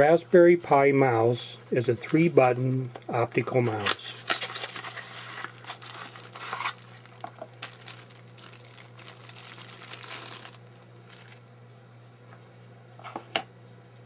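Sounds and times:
faint steady hum: 0.0s - 14.0s
plastic bag crinkling: 3.8s - 11.4s.

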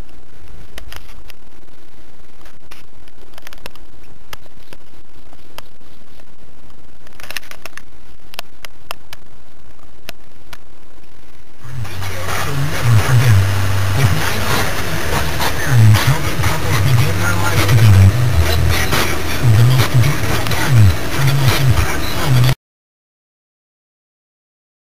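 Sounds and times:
low steady hum: 0.0s - 22.6s
car cabin engine and road noise: 11.6s - 22.6s.

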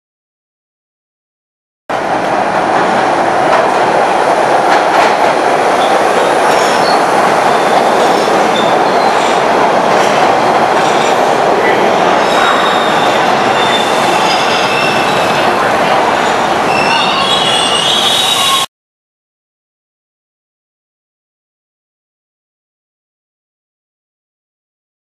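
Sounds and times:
steel wheels rumbling on rail: 1.9s - 18.7s
high wheel squeals: 12.2s - 15.5s, 16.7s - 18.7s.

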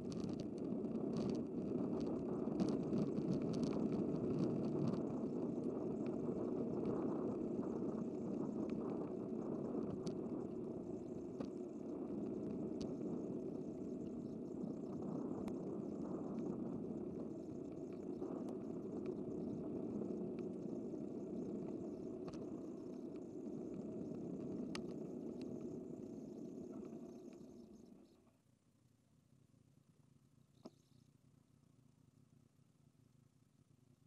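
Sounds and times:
wind noise: 0.0s - 27.1s
faint clicks: 0.1s - 5.4s, 6.0s - 28.3s.

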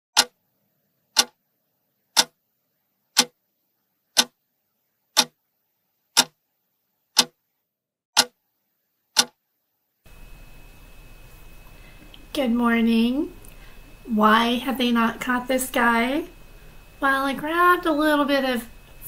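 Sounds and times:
clock-like ticking: 0.2s - 0.4s, 1.2s - 1.4s, 2.2s - 2.4s, 3.2s - 3.4s, 4.2s - 4.4s, 5.2s - 5.4s, 6.2s - 6.4s, 7.2s - 7.4s, 8.2s - 8.4s, 9.2s - 9.4s.

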